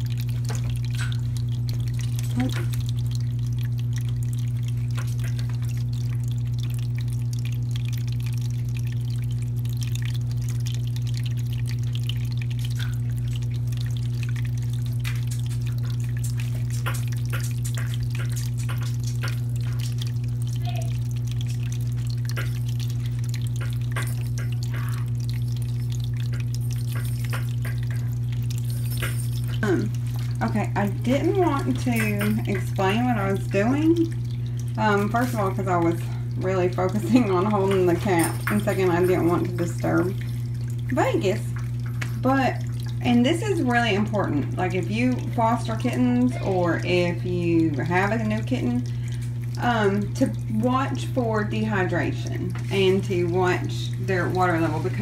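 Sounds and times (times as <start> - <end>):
faint water drips: 0.0 - 55.0
water pump humming: 0.0 - 55.0
water trickling: 0.0 - 55.0.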